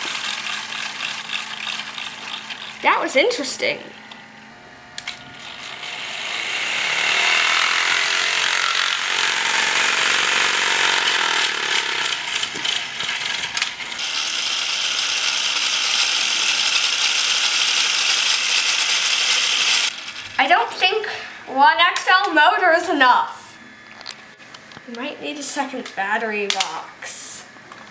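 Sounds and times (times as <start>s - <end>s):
toy motor whirring with gear rattle: 0.0s - 3.6s, 5.0s - 20.6s.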